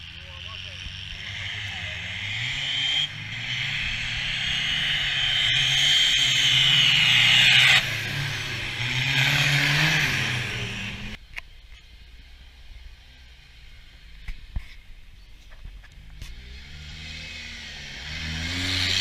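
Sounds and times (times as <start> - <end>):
racing vehicle engines revving: 0.0 - 11.2, 15.6 - 19.0.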